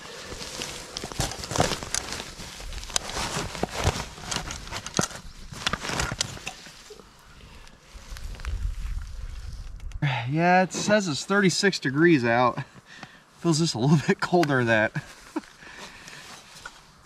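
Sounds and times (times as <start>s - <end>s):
fabric rustling: 0.0s - 9.7s.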